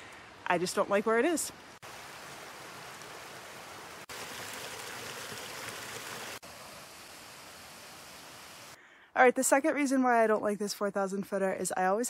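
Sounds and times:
brook running over rocks: 0.6s - 8.8s.

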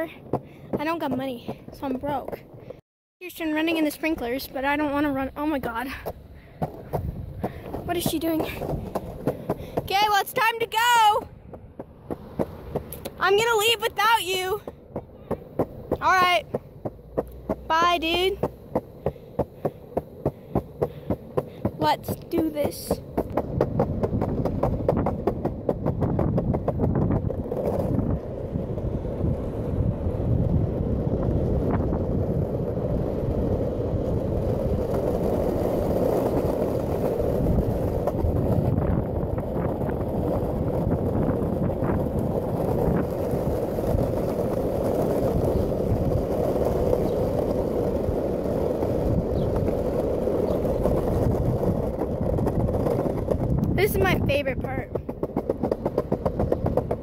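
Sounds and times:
longboard wheels rumbling on pavement: 0.0s - 57.0s
wind buffeting microphone: 0.0s - 57.0s.

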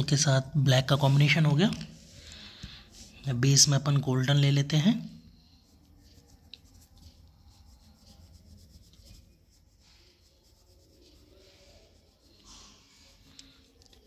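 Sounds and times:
crayon scratching on paper: 5.3s - 14.0s.

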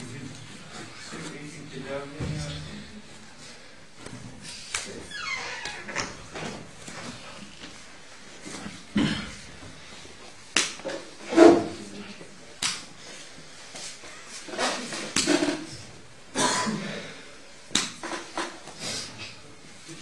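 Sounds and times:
slaps of hands and bodies on mat: 10.5s - 10.9s, 12.6s - 13.0s, 14.9s - 15.5s, 17.7s - 18.8s.

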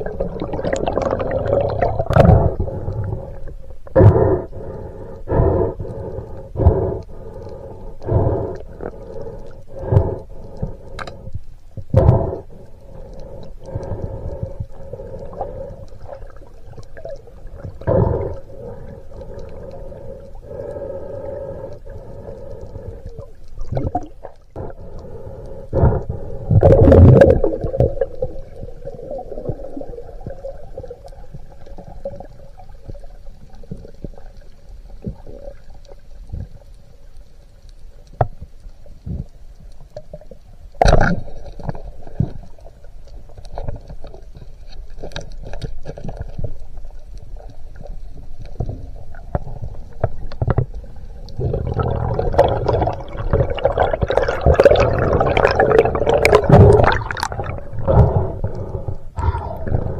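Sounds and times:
rushes of water: 0.0s - 3.6s, 12.8s - 36.7s, 40.8s - 59.9s
underwater droning hum: 0.0s - 59.9s.

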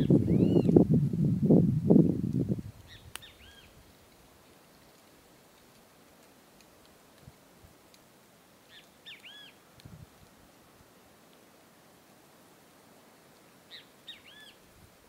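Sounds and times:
bird call: 8.7s - 9.6s, 13.7s - 14.6s.

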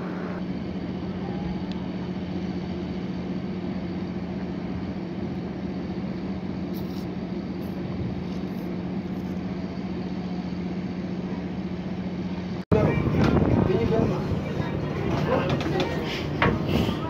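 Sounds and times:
ship engine humming: 0.0s - 17.0s
water rushing along hull: 11.2s - 17.0s.

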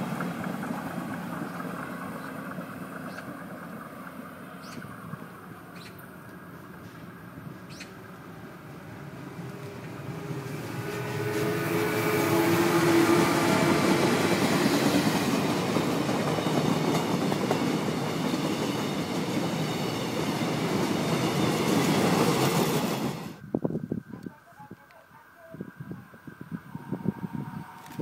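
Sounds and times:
electric locomotive humming: 0.0s - 23.8s, 25.8s - 28.0s
train wheels clattering on rails: 10.7s - 23.4s.

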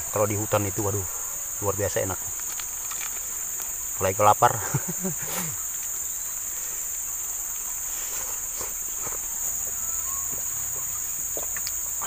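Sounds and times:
insect chorus droning: 0.0s - 12.0s.

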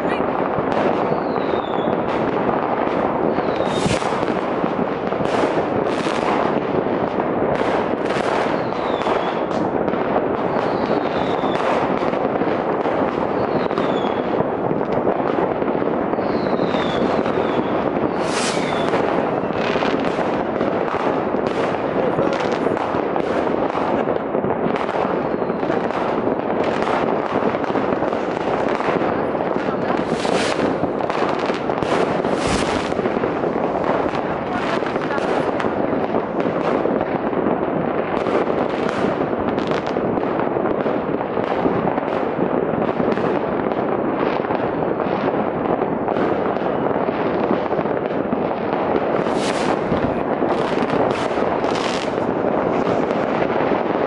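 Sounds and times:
distant fireworks crackling: 0.0s - 54.0s
sharp firework bangs: 0.0s - 54.0s
falling firework whistle: 1.0s - 2.1s, 3.3s - 4.3s, 8.3s - 9.6s, 10.5s - 11.8s, 13.3s - 14.3s, 16.1s - 20.1s, 49.2s - 49.9s.

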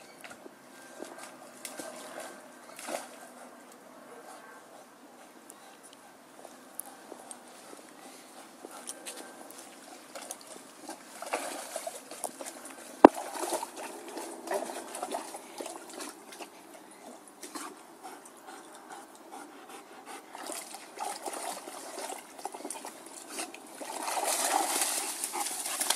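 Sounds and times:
dog splashing in water: 1.6s - 3.2s, 9.8s - 16.5s, 20.3s - 25.9s.

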